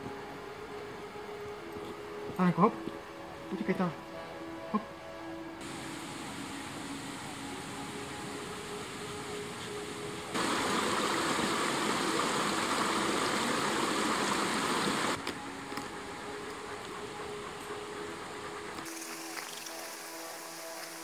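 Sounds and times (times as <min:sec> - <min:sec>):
rushing mountain stream: 0:05.6 - 0:17.0, 0:18.8 - 0:21.0.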